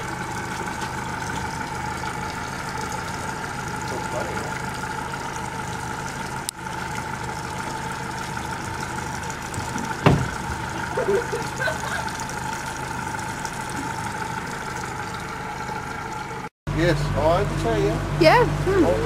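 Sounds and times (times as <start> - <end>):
outboard motor idling: 0.0 - 19.0
thump: 9.6 - 10.6.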